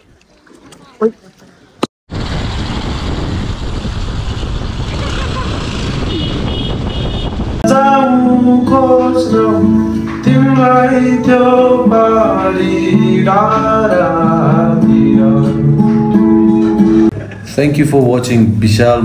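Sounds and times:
man singing: 7.6 - 15.8
acoustic guitar: 7.6 - 17.6.

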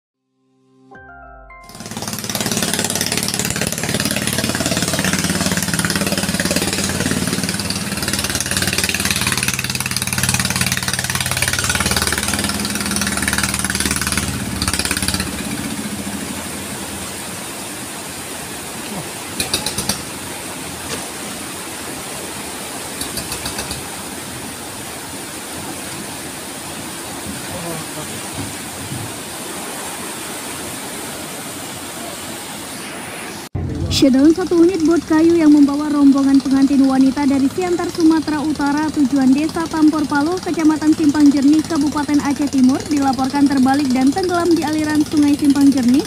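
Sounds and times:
boat engine running hard: 1.7 - 32.2, 33.6 - 46.0
rushing river rapids: 1.7 - 33.5.

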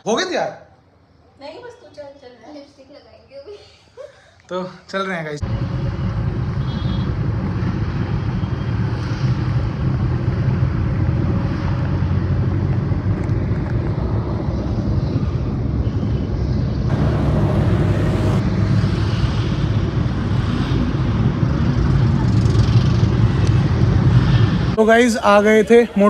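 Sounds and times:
car road and engine noise: 5.4 - 24.8
wind noise: 5.8 - 24.8.

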